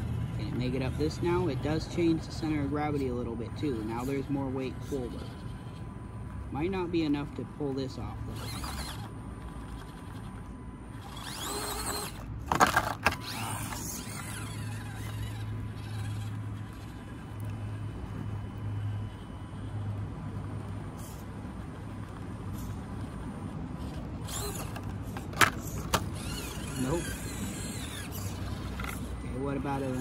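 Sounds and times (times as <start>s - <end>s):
electric motor and gears whining: 0.0s - 30.0s
toy truck clattering on rock: 8.3s - 10.3s, 11.0s - 17.1s, 23.8s - 29.2s.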